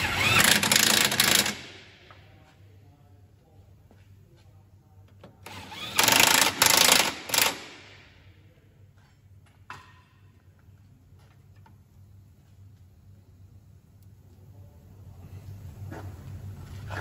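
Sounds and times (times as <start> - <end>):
impact driver bursts: 0.0 - 1.8, 5.5 - 8.0.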